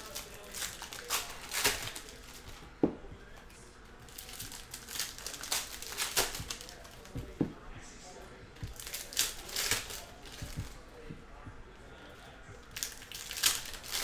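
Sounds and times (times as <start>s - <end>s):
packaging crinkling and tearing: 0.0s - 2.6s, 4.1s - 7.3s, 8.6s - 10.8s, 12.7s - 14.0s
soft thumps: 7.1s - 7.8s.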